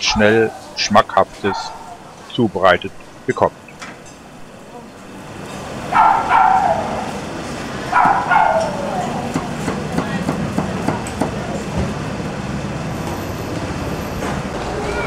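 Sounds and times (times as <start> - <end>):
low street rumble: 0.0 - 15.0
loud drawn-out calls: 5.8 - 9.4.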